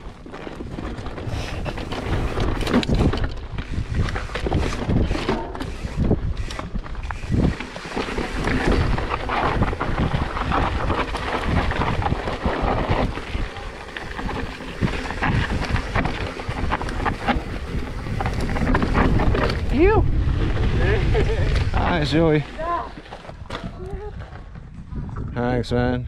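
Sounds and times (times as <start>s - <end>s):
wind buffeting microphone: 0.0s - 26.0s
bike clicking and knocking: 0.2s - 20.0s
tyres crunching over gravel: 7.0s - 23.5s.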